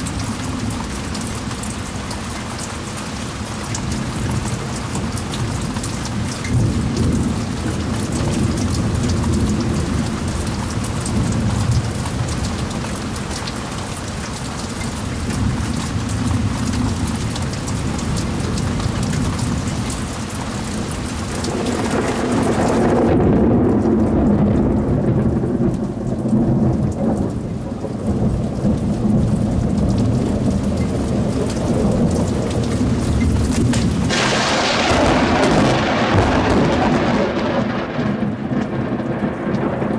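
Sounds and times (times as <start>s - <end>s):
heavy rain pouring: 0.0s - 39.9s
thunder rumbling: 3.8s - 13.2s, 20.6s - 39.9s.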